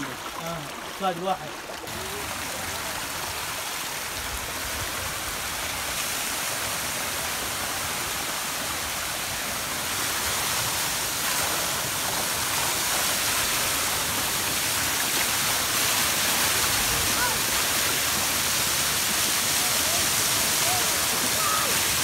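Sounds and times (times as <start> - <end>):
water splashing into rocky pool: 0.0 - 3.9.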